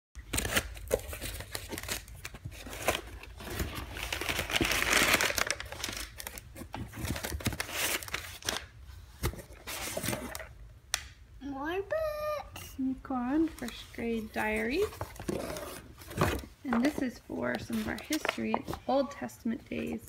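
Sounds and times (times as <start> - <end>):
packing paper crinkling: 0.2 - 10.5, 13.5 - 18.8.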